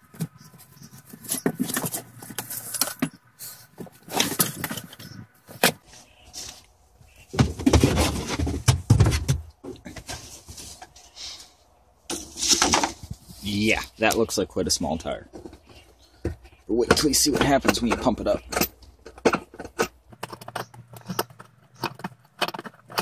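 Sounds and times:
rubbing and bumping: 0.0s - 6.0s, 7.1s - 11.1s, 15.3s - 23.0s
metal clinks and knocks: 15.3s - 23.0s.

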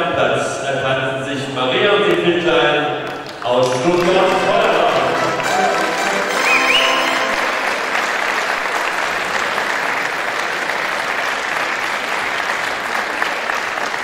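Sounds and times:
crowd applauding: 3.0s - 14.0s.

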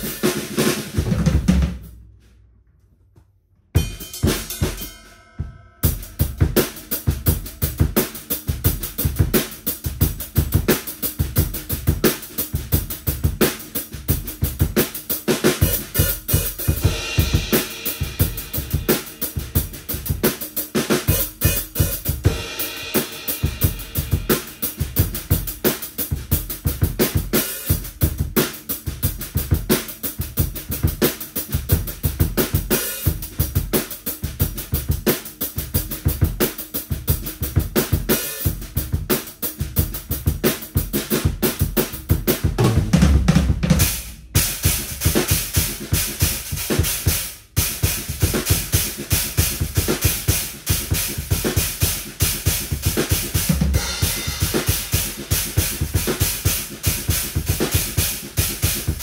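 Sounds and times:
drum kit played fast: 0.0s - 2.0s, 3.8s - 59.0s.

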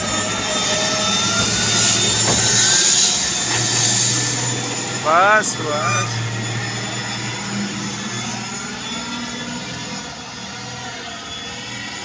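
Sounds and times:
wheel loader diesel engine drone: 0.0s - 12.0s.

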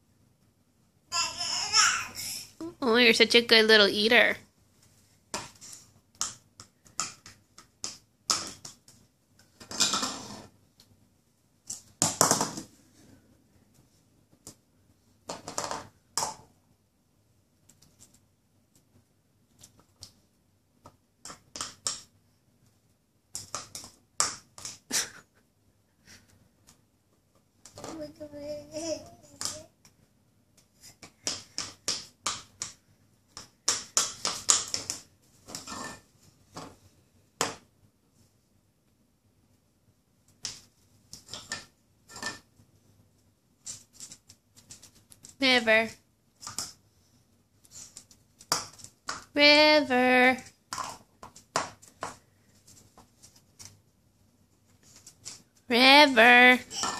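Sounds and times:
plastic cups clattering on tile: 50.7s - 52.2s.

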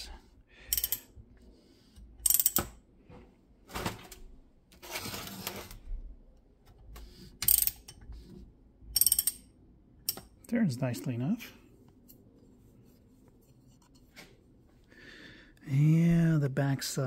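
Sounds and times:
socket ratchet clicking: 0.7s - 1.1s, 2.2s - 2.7s, 7.4s - 8.0s, 9.0s - 10.3s.

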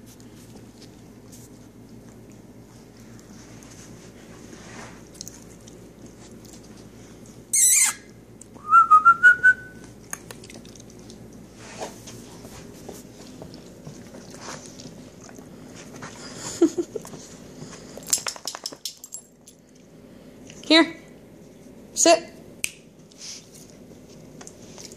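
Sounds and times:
squeaky dog toy squeaking: 7.5s - 8.1s.

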